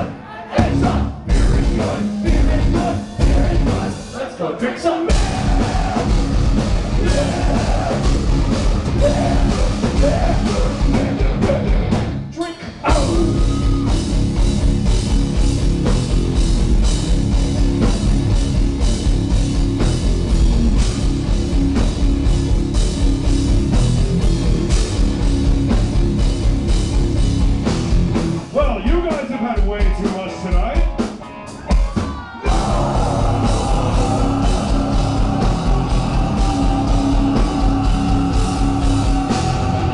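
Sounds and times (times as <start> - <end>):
electric guitars: 0.0 - 4.0, 5.1 - 12.3, 12.9 - 28.5, 29.6 - 39.9
bass guitar: 0.0 - 4.2, 5.1 - 39.9
drum kit: 0.0 - 4.2, 5.0 - 39.9
vocals: 0.0 - 14.1, 28.5 - 39.9.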